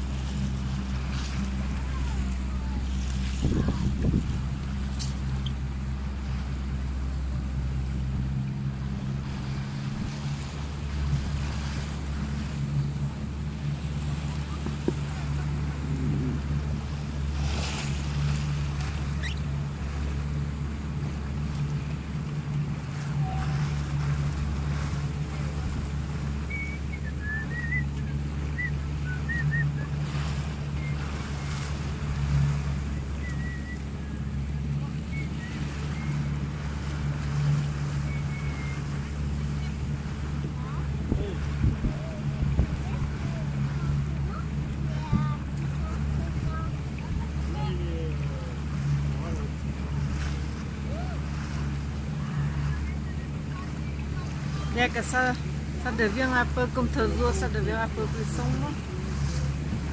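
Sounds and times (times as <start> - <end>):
wind on microphone: 0.0 - 6.2, 14.4 - 19.4, 35.1 - 47.4, 58.8 - 59.9
choppy water splashing: 0.0 - 59.9
motorboat engine humming: 0.0 - 59.9
faint short squeaks: 19.0 - 19.6, 26.4 - 28.7, 38.0 - 38.9.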